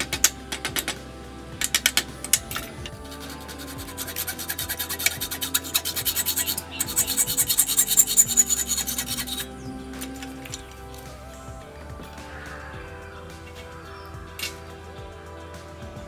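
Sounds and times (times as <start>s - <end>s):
hacksaw cutting steel rod: 3.2s - 9.5s.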